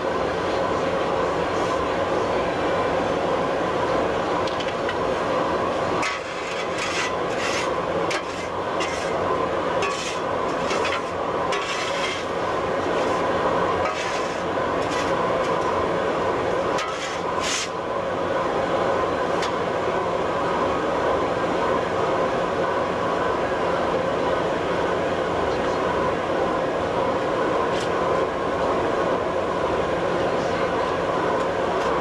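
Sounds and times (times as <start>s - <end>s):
hum of shop machinery: 0.0s - 32.0s
shovel scraping on metal: 6.0s - 9.2s, 9.8s - 12.3s, 13.8s - 15.2s, 16.8s - 17.8s.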